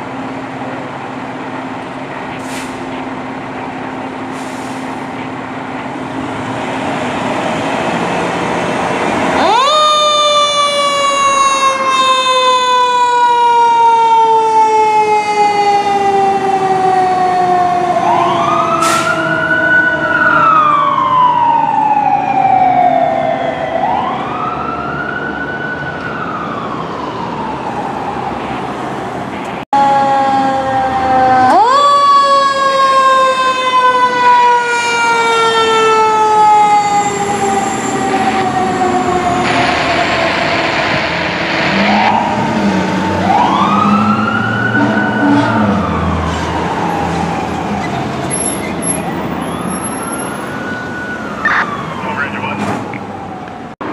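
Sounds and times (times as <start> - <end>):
wailing siren: 7.9 - 53.9
winding siren: 30.9 - 52.1.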